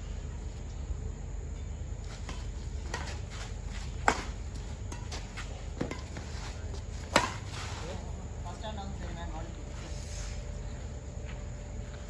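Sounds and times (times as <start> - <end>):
steady low hum: 0.0 - 12.0
rackets smacking shuttlecock: 2.2 - 6.2, 6.9 - 7.6.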